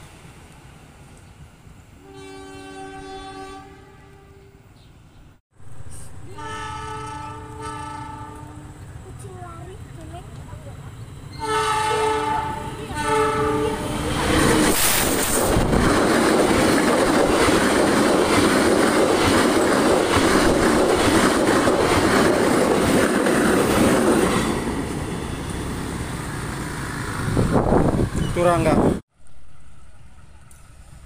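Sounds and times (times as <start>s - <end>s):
locomotive horn blast: 2.0s - 4.6s, 6.2s - 8.8s, 11.4s - 14.0s
train wheels rushing on rail: 5.7s - 29.0s.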